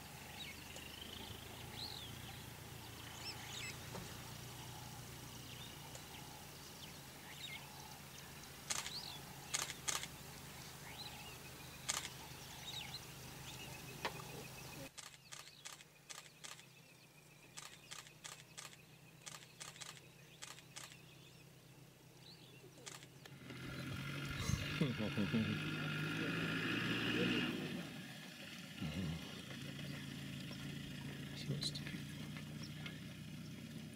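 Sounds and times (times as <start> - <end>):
sharp clicks: 8.6 - 10.2, 11.8 - 12.2, 14.9 - 16.7, 17.5 - 21.0, 22.8 - 23.4
short bird chirps: 17.5 - 21.1.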